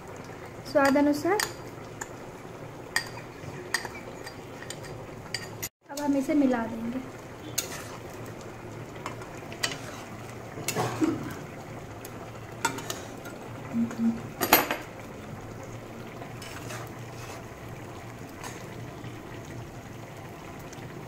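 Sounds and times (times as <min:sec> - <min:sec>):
metal spatula scraping a pan: 0:07.5 - 0:08.1, 0:09.6 - 0:10.2, 0:12.6 - 0:13.2, 0:16.4 - 0:17.5.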